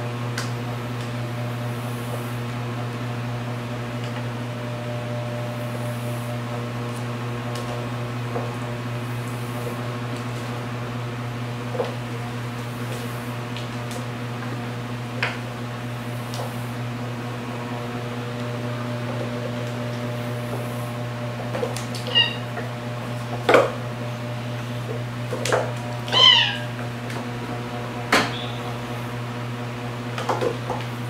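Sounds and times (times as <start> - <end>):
steady low hum: 0.0 - 31.0
cat meowing: 22.1 - 22.4, 26.1 - 26.7.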